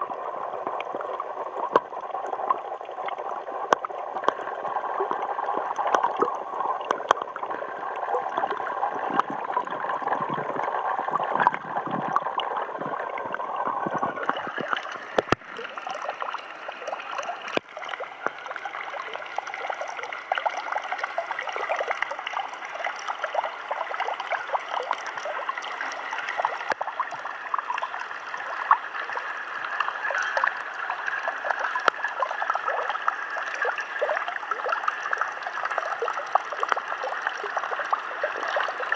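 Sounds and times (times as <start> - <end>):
muffled underwater gurgling: 0.0 - 38.9
water trickling: 0.0 - 38.9.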